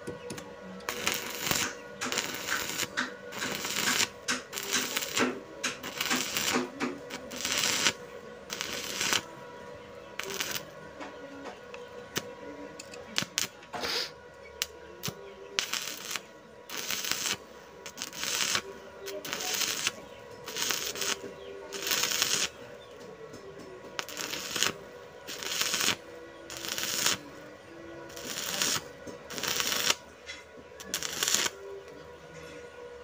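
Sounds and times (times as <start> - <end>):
welding arc crackling and sputtering: 0.3 - 9.3, 10.2 - 10.8, 12.1 - 13.6, 14.6 - 22.6, 24.0 - 27.4, 28.1 - 30.0, 30.8 - 31.6.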